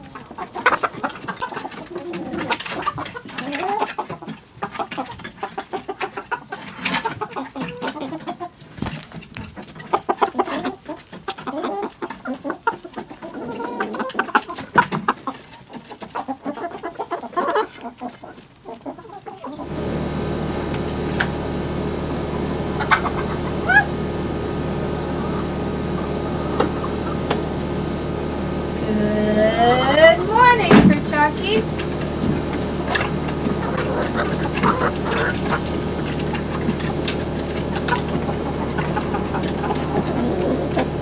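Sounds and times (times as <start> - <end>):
hens clucking: 0.0 - 41.0
steady hum: 19.6 - 41.0.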